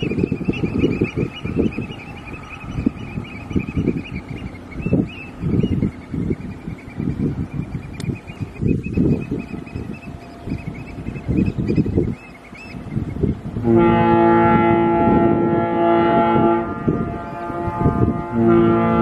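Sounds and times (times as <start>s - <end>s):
ship's whistle deep blast: 13.6s - 19.0s.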